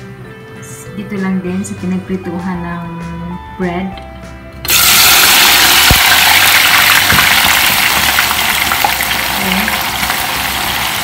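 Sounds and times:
onions sizzling in hot oil: 4.7s - 11.0s.

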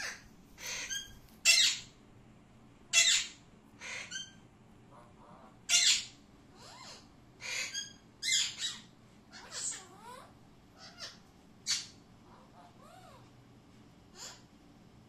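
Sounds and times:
parakeets squawking: 0.0s - 1.9s, 2.9s - 4.4s, 5.0s - 13.3s.

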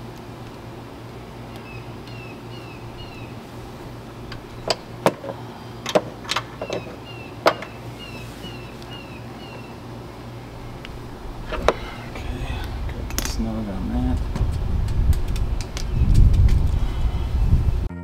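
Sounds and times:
bird chirping: 1.4s - 3.5s, 6.4s - 13.4s, 15.4s - 16.3s
clicks and knocks of handling parts: 4.3s - 7.7s.

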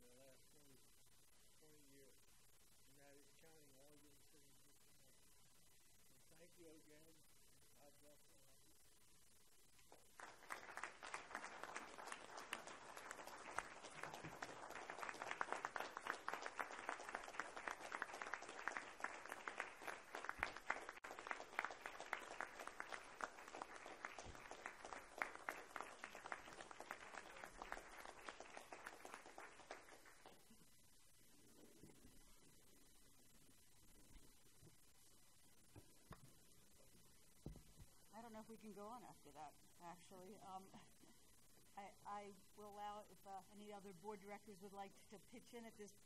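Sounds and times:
applause: 9.8s - 30.6s.

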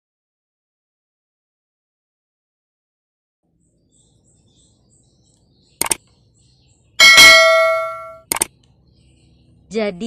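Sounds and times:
quick double click: 5.8s - 6.0s, 8.2s - 8.5s
loud bell-like ring: 7.0s - 8.2s.

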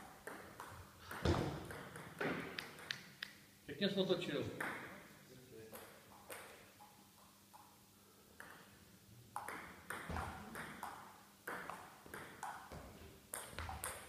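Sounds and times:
table tennis ball pinging: 0.2s - 3.0s, 4.6s - 5.0s, 5.7s - 6.8s, 9.3s - 14.0s.

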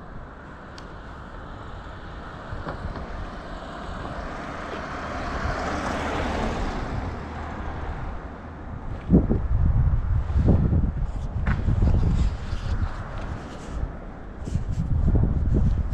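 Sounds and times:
vehicle driving past: 3.0s - 8.2s.

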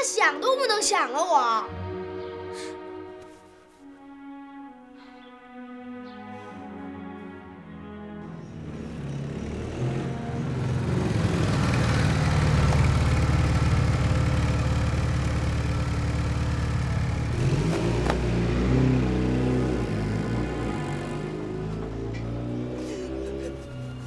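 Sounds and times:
motorcycle engine running: 8.5s - 22.5s.

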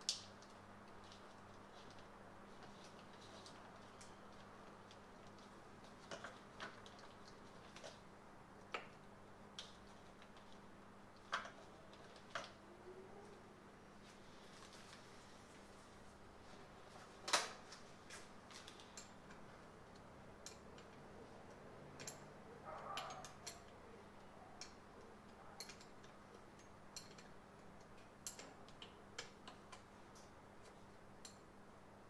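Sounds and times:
hand tools clicking and tapping: 18.6s - 31.5s.

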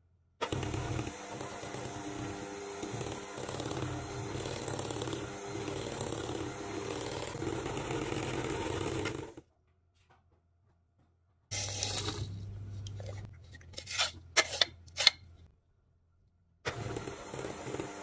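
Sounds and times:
electric hand mixer running: 0.4s - 9.4s, 16.7s - 18.0s.

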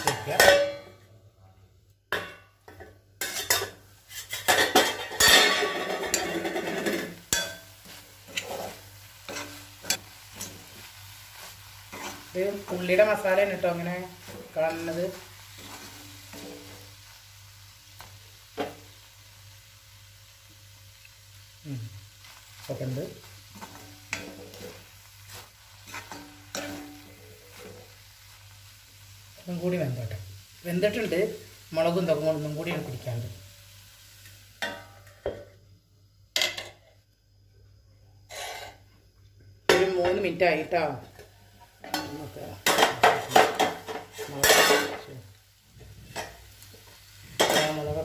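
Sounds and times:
light sizzle: 0.0s - 48.0s
metal spatula scraping pan: 3.2s - 10.5s, 11.9s - 12.9s, 23.5s - 27.8s, 38.3s - 38.8s.

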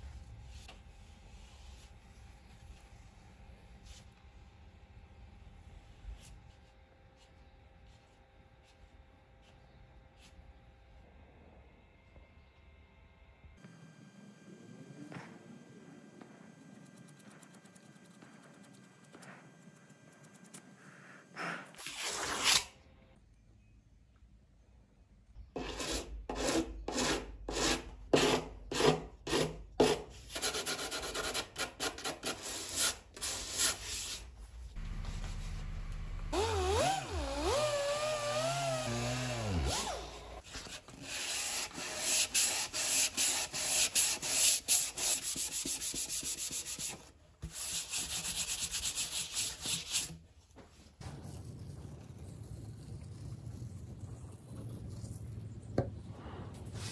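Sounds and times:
sandpaper rubbing: 21.5s - 22.7s, 36.4s - 50.2s.

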